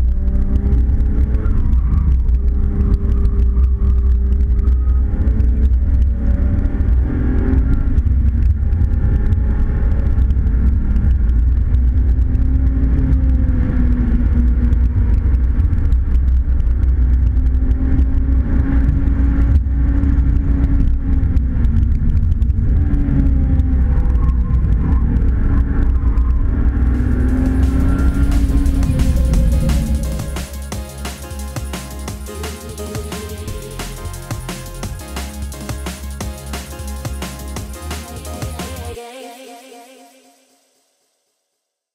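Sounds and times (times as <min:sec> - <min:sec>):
heavy low rumble: 0:00.0 - 0:39.0
car engine revving: 0:25.0 - 0:39.0.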